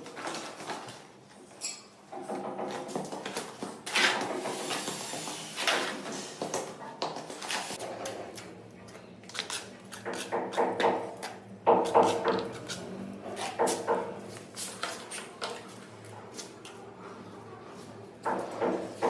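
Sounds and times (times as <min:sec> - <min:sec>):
mortar worked in a bowl: 0:06.5 - 0:19.0.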